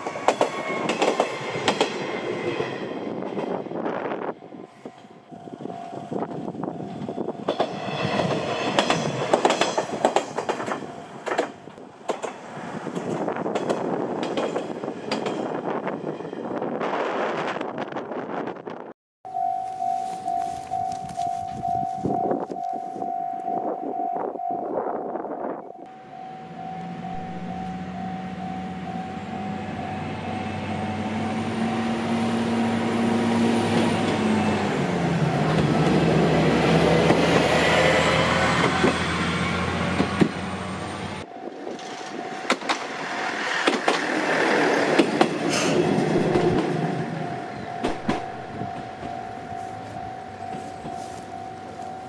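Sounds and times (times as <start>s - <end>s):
train wheel clacks: 0.0s - 2.1s, 7.4s - 15.6s, 41.8s - 46.9s, 47.7s - 49.3s
diesel railcar engine drone: 0.0s - 52.0s
level crossing alarm ringing: 19.3s - 24.8s, 25.7s - 30.5s, 47.0s - 52.0s.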